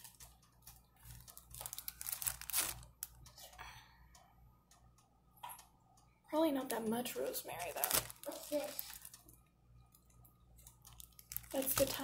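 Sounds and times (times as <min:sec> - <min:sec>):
plastic bag crinkling: 0:01.0 - 0:03.2, 0:07.3 - 0:09.4, 0:10.6 - 0:12.0.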